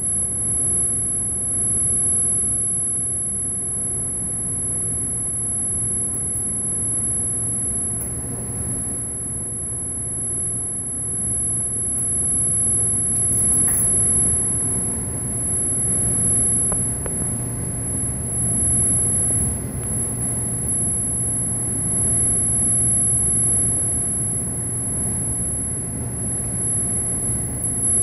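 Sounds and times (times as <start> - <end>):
laser high-pitched whine: 0.0 - 28.0
equipment low hum: 7.0 - 22.7.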